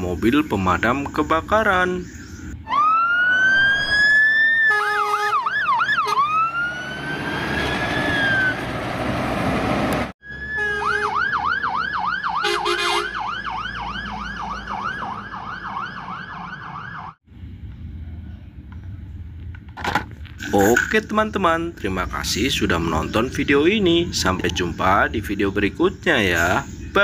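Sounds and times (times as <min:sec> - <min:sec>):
fast yelp siren: 0:02.6 - 0:08.6, 0:10.2 - 0:17.2
wailing siren: 0:02.6 - 0:08.8, 0:10.2 - 0:17.2
steady horn blast: 0:04.6 - 0:06.3, 0:12.4 - 0:13.2
rush of passing truck: 0:06.7 - 0:10.2.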